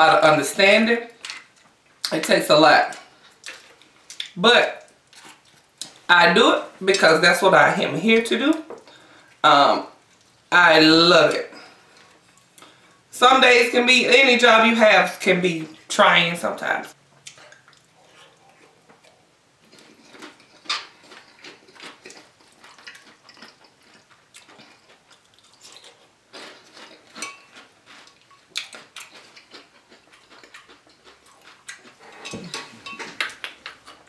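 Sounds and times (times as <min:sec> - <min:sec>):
chewing: 0:02.9 - 0:06.0, 0:17.2 - 0:34.0
spoon clinking in glass bowl: 0:27.2 - 0:27.6.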